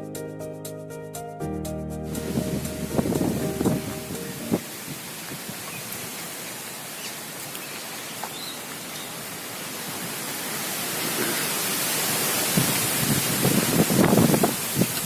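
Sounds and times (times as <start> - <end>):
outdoor rushing hiss: 2.1 - 15.0
low thuds: 2.2 - 4.6.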